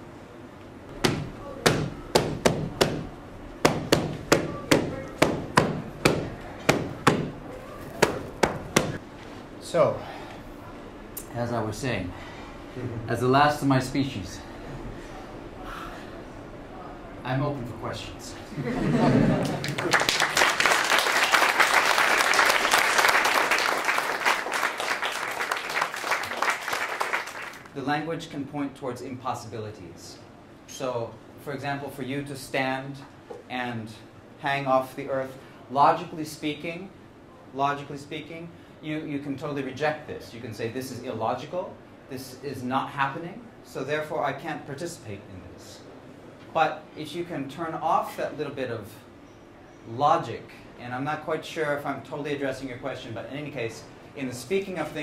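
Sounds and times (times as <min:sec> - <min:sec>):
small group clapping: 0:08.0 - 0:09.0, 0:19.4 - 0:27.8.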